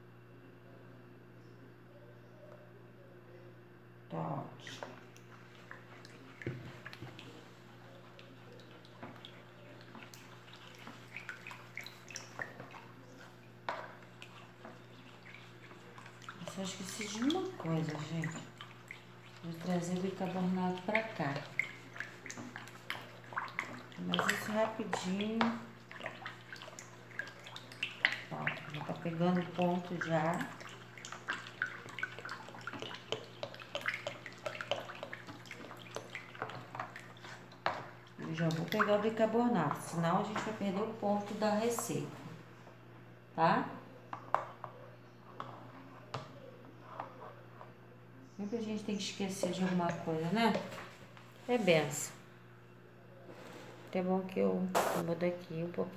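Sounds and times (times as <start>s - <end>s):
liquid sloshing and dripping: 4.6s - 40.6s.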